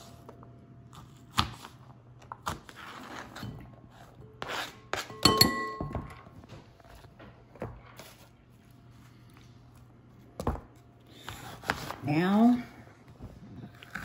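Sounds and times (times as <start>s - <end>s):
knife scraping cutting board: 2.7s - 5.2s, 11.1s - 12.0s
knife clinking on bowl: 5.0s - 6.1s.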